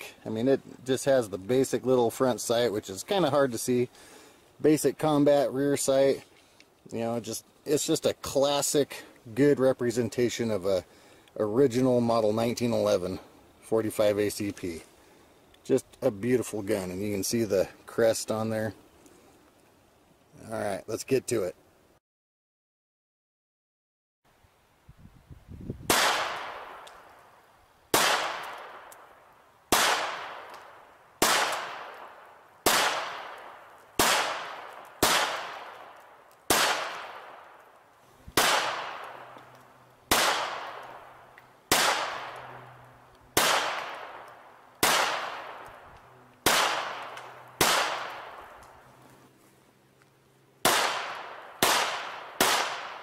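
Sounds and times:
pistol shots echoing: 25.9s - 26.8s, 27.9s - 29.0s, 29.7s - 30.5s, 31.2s - 37.6s, 38.4s - 39.4s, 40.1s - 42.7s, 43.4s - 45.8s, 46.4s - 48.5s, 50.6s - 53.0s.

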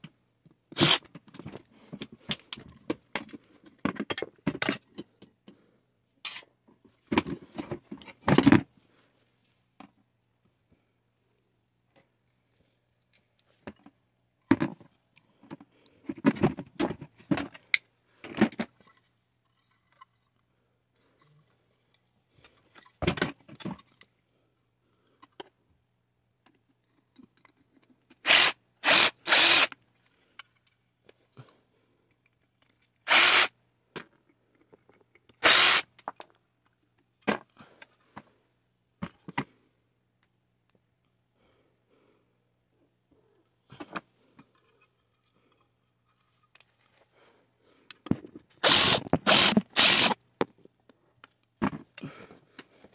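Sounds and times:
cordless drill running: 0.8s - 1.0s, 28.2s - 29.7s, 33.1s - 33.5s, 35.4s - 35.8s, 48.6s - 50.2s.

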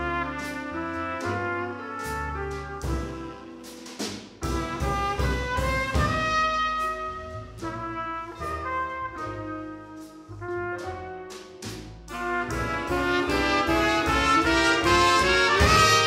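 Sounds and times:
piano: 0.0s - 16.0s
trumpet melody: 0.0s - 16.0s
drums with cymbal strokes: 2.0s - 7.1s.

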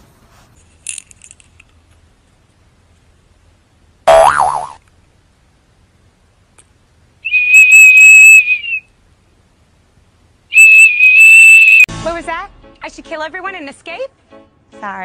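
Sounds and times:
shrill toy whistle blasts: 7.2s - 8.9s, 10.5s - 11.9s.

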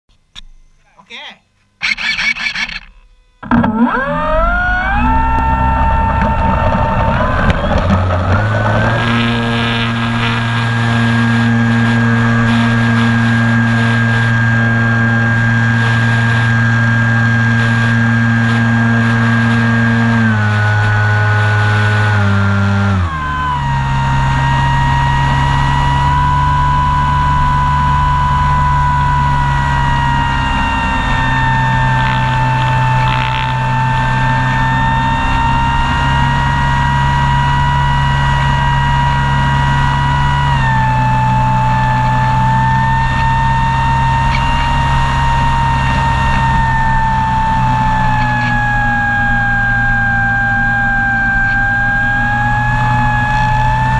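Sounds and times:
model airplane motor and propeller: 1.8s - 53.9s.

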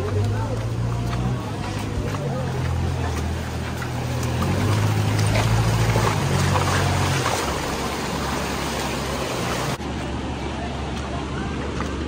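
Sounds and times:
rushing stream: 0.0s - 12.0s
vehicle engine running: 0.0s - 12.0s.

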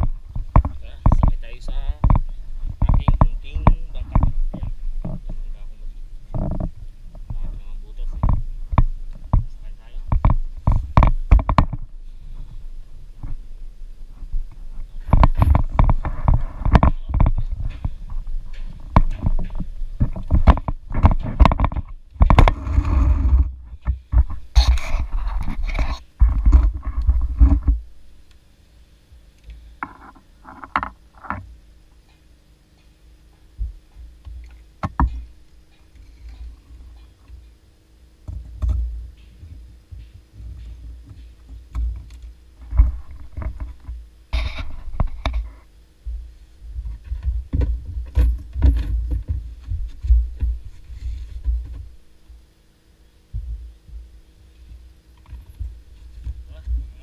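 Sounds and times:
knocks and scrapes in boat: 6.3s - 13.4s, 14.2s - 27.8s, 38.3s - 51.9s.

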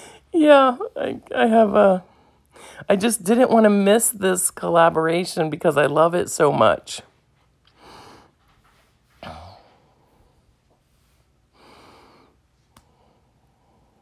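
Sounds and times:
soft breathing: 7.6s - 14.0s.

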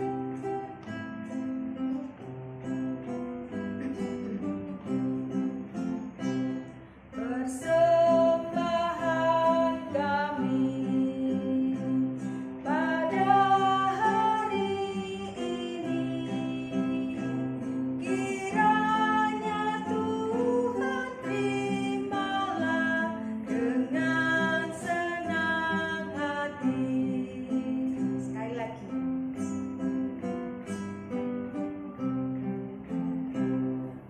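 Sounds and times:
acoustic guitar: 0.0s - 34.0s
woman singing a hymn: 7.2s - 28.5s.

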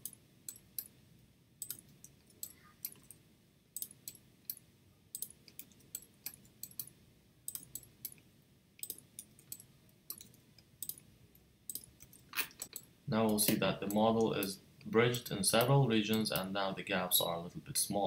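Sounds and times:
mouse and keyboard clicks: 5.2s - 6.9s, 7.5s - 8.2s, 8.8s - 11.1s, 11.7s - 14.0s.

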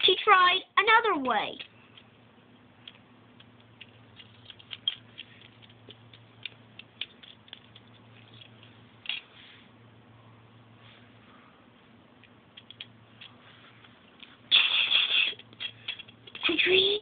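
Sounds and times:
plastic bricks clicking together: 2.8s - 9.2s, 12.6s - 13.3s, 15.3s - 16.5s.

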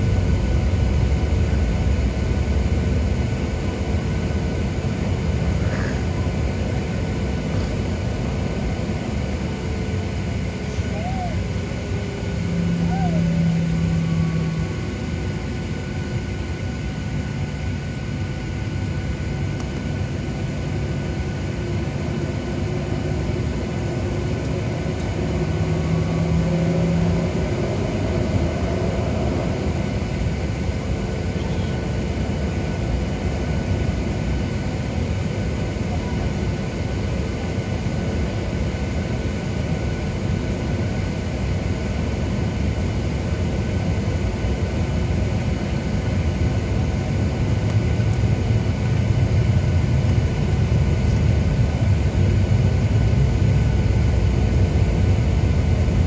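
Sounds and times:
jet engines humming in cabin: 0.0s - 56.0s.

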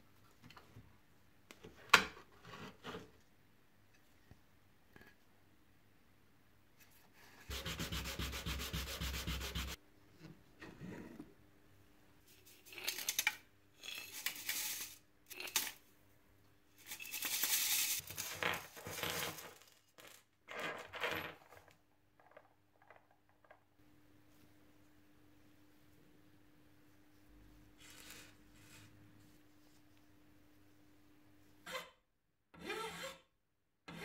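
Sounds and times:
rubbing on a wooden board: 7.5s - 9.8s
metal parts rattling in a mesh sifter: 12.5s - 15.8s, 16.8s - 21.6s.

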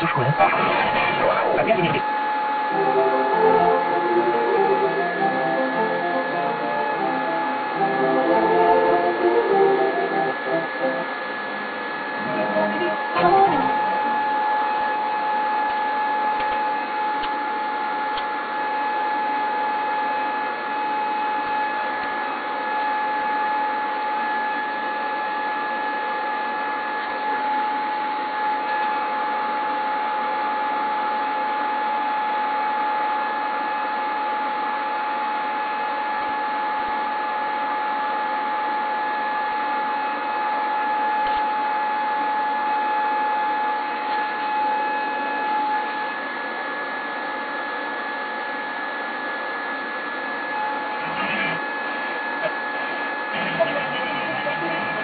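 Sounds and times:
high whine: 0.0s - 24.6s, 50.3s - 55.0s.

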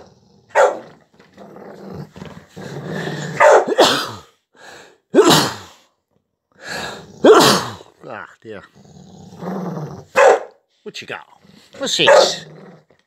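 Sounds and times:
dog play-growling: 0.0s - 3.4s, 8.6s - 10.1s, 11.3s - 13.0s
dog barking loudly: 0.5s - 0.9s, 3.4s - 4.0s, 10.1s - 10.6s, 11.8s - 12.4s.

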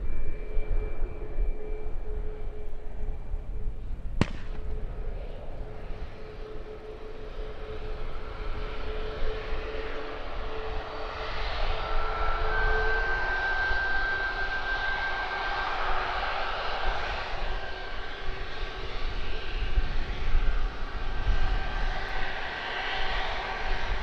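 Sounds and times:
airliner engines whining: 0.0s - 24.0s
wind rumble on microphone: 0.0s - 24.0s.

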